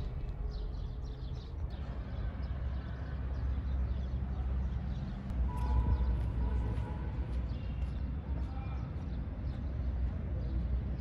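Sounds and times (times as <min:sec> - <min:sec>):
steady low rumble: 0:00.0 - 0:02.5.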